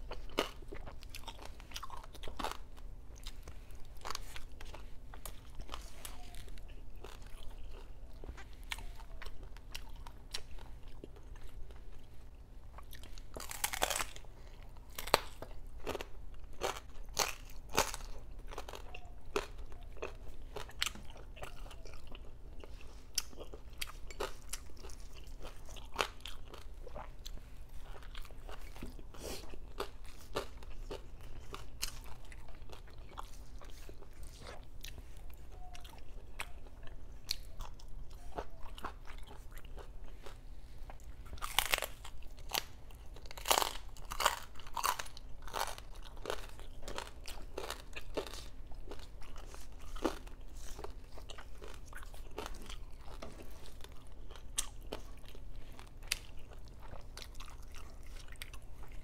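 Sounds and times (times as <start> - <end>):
chewing crispy pork skin: 0.0 - 59.0
loud crunchy bite: 13.0 - 14.3, 41.4 - 53.2.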